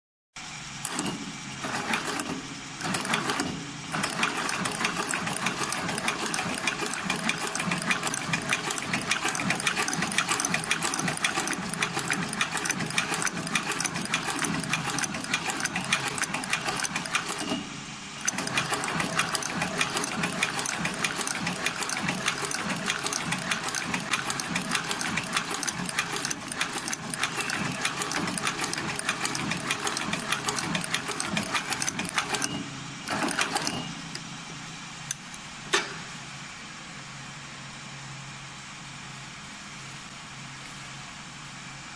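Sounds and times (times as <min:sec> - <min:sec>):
sewing machine clatter: 0:00.8 - 0:34.1.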